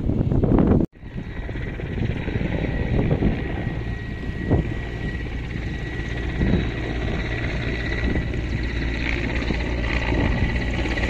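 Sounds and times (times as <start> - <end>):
helicopter rumble: 0.0 - 11.0.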